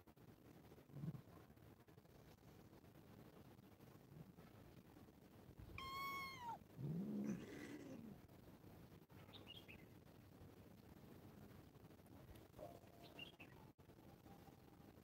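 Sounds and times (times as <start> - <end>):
cats meowing: 5.8 - 6.6.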